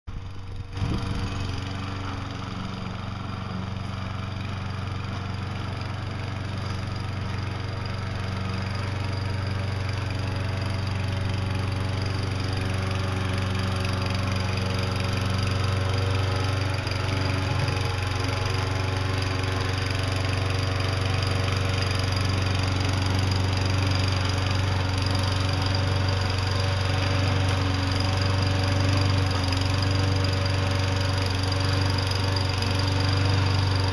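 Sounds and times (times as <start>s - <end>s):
lawn mower engine running: 0.1s - 33.9s.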